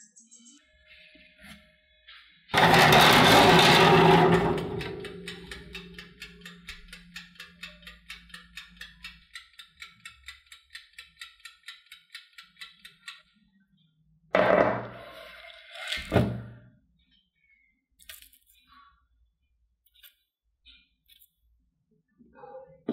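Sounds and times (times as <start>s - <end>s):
baking tray scraping into oven: 2.6s - 5.4s
oven timer ticking: 3.8s - 13.4s.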